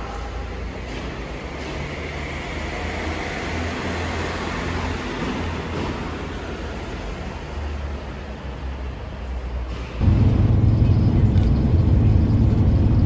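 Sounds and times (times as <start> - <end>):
low machine hum: 10.0 - 13.0.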